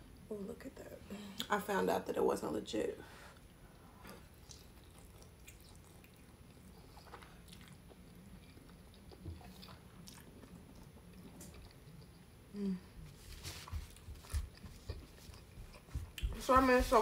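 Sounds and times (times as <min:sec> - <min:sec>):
person chewing food: 0:03.4 - 0:12.5, 0:13.1 - 0:16.4.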